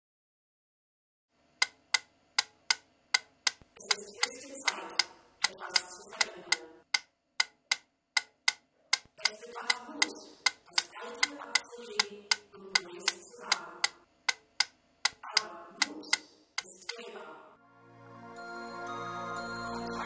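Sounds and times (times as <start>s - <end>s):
metronome ticking: 1.6s - 17.0s
murky background sound: 3.8s - 6.8s, 8.9s - 14.0s, 15.1s - 17.6s.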